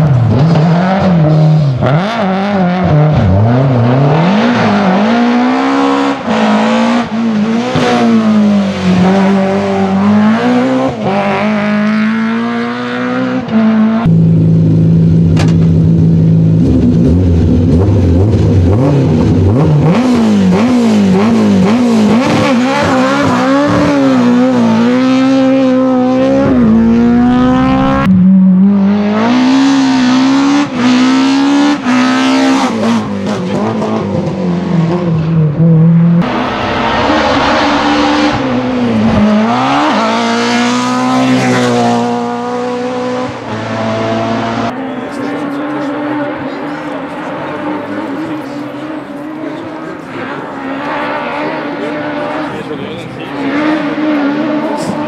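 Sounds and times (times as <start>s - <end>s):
car accelerating with gear changes: 0.0s - 55.0s
rally car engine at high revs: 0.0s - 55.0s
engine revs blipped: 16.0s - 34.1s, 34.9s - 55.0s.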